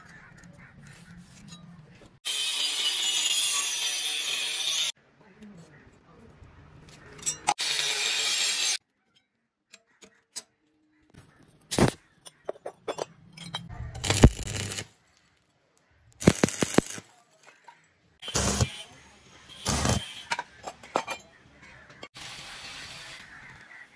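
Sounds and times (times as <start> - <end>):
arc welding crackle: 14.0 - 15.0, 16.2 - 17.1, 18.2 - 18.9, 19.5 - 20.2, 22.2 - 23.8.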